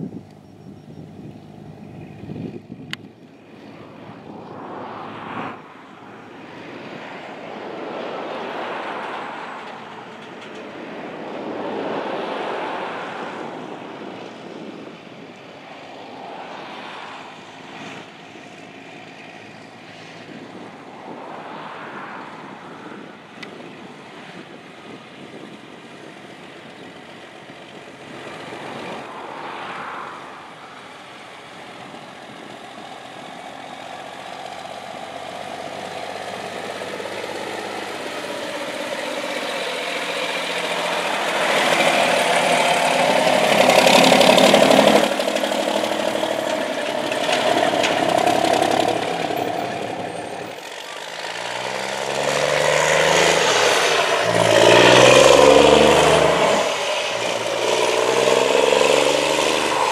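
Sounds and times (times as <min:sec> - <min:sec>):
diesel truck engine: 0:00.0 - 0:59.9
tyres on gravel: 0:30.8 - 0:59.9.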